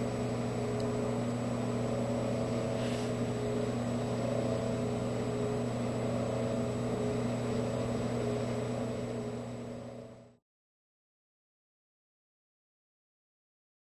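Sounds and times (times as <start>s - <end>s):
droning hum of held tones: 0.0s - 10.4s
thin high whine: 0.0s - 10.4s.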